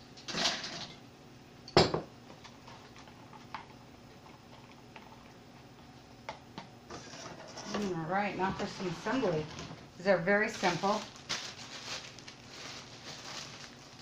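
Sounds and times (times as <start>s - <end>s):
utensil scraping bowl: 6.9s - 9.4s.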